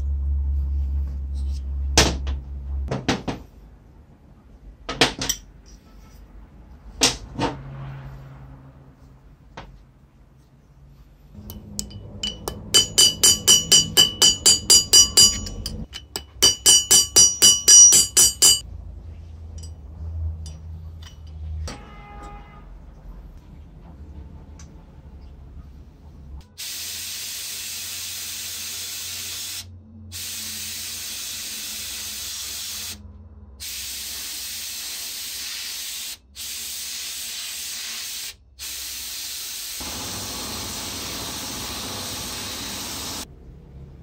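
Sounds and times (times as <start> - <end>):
hammer striking metal: 11.4 - 18.6
metal clinks: 11.4 - 18.6.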